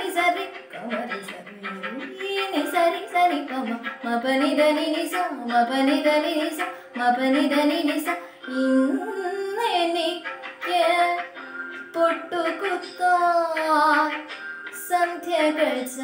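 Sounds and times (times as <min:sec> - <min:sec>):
girl singing: 0:00.0 - 0:16.0.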